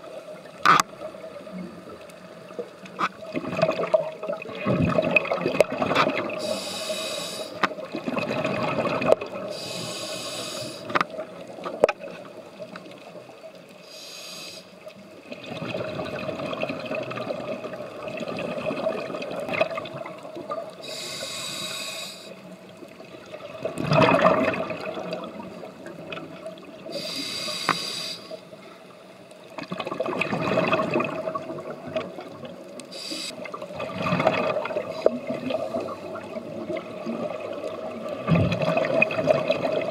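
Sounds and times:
gurgling exhaled bubbles: 3.2s - 6.6s, 7.8s - 9.5s, 15.3s - 20.8s, 23.1s - 26.9s, 29.6s - 32.7s, 33.3s - 39.9s
regulator hiss on inhale: 6.4s - 7.8s, 9.4s - 11.1s, 13.8s - 14.9s, 20.8s - 22.5s, 26.9s - 28.8s, 32.9s - 33.5s.

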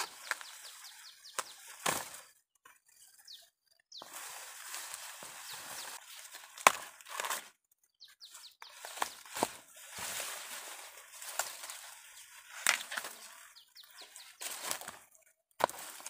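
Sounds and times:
stalks snapping: 0.0s - 0.6s, 1.3s - 2.2s, 6.4s - 7.5s, 12.5s - 13.4s, 15.6s - 16.0s
corn plants rustling: 0.0s - 3.4s, 4.0s - 16.0s.

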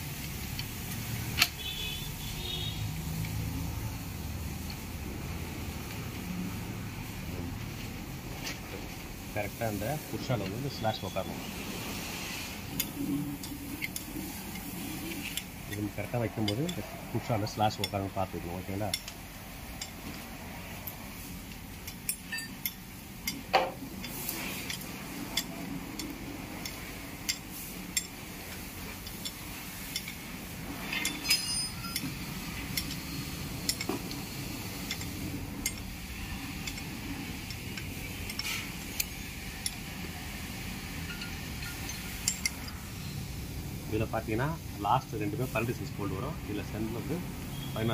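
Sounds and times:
metal parts and tools clinking: 12.6s - 40.1s, 40.9s - 42.9s.

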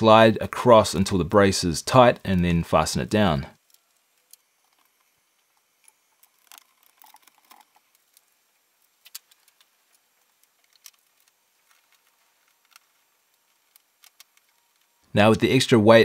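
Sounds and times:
faint metallic clicks and rattles: 3.6s - 15.0s.

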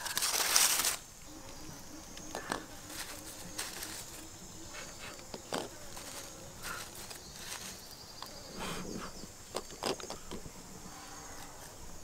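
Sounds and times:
dry leaves rustling and crackling: 0.0s - 1.2s, 2.2s - 8.0s.

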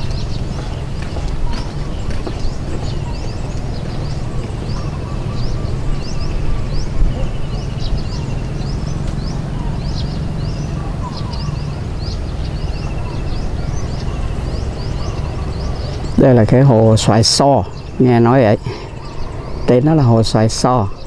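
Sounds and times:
birds chirping: 0.0s - 21.0s
soft bird trill: 0.0s - 21.0s
steady low rumble: 0.0s - 21.0s.

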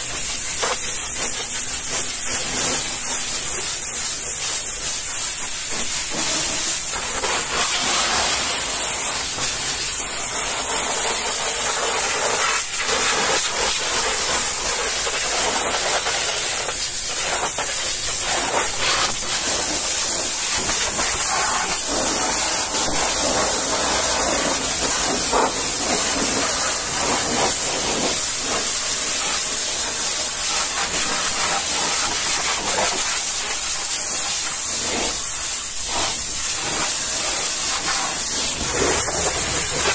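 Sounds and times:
pressure washer jet hissing: 0.0s - 39.9s
water spattering off rubber and steel: 34.2s - 39.9s.

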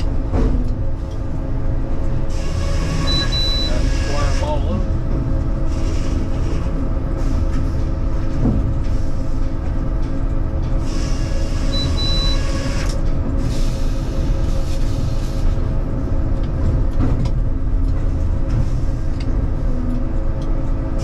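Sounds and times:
short high beep: 3.1s - 3.8s.

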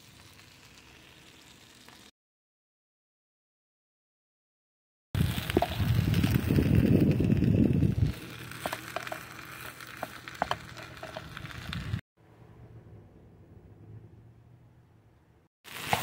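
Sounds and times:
onions frying in a pan: 0.0s - 2.1s, 5.2s - 12.0s, 15.6s - 16.0s
spatula scraping and tapping pan: 8.6s - 11.3s
low rumbling noise: 11.4s - 15.5s.

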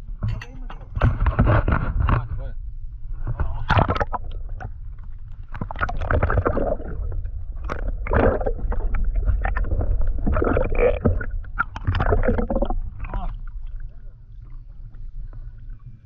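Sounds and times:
low rumble: 0.0s - 16.0s
underwater gurgling and sloshing: 0.0s - 16.0s
clicks and splashes: 3.4s - 14.0s.

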